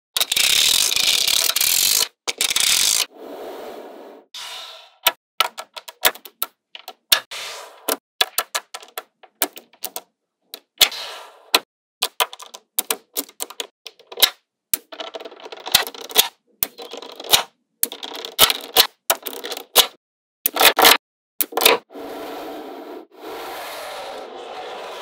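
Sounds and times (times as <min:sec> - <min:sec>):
magnetic balls clicking together: 0:08.2 - 0:10.7, 0:12.0 - 0:20.7.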